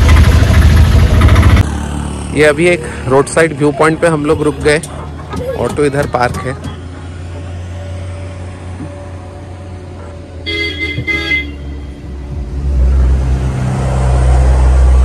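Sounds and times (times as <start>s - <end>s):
deep engine rumble: 0.0s - 10.5s, 11.5s - 15.0s
road traffic hum: 0.0s - 15.0s
vehicle horn tooting: 10.4s - 12.0s.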